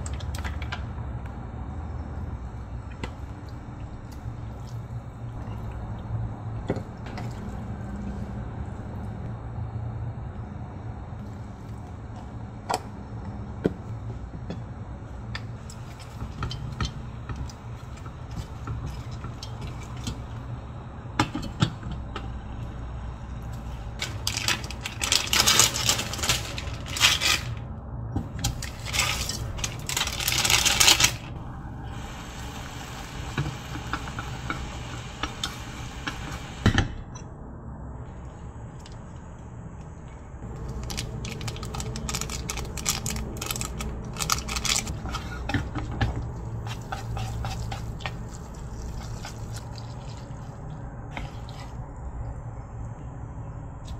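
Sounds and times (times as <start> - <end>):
steady low hum: 0.0 - 53.9
spatula scraping pan: 46.6 - 48.3.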